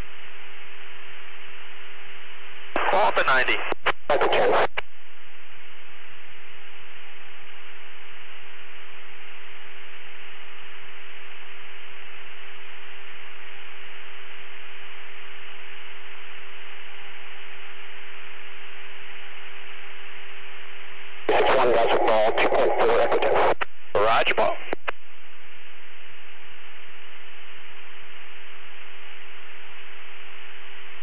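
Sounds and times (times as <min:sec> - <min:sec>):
constant hum tone: 0:00.0 - 0:31.0
radio static hiss: 0:00.0 - 0:31.0.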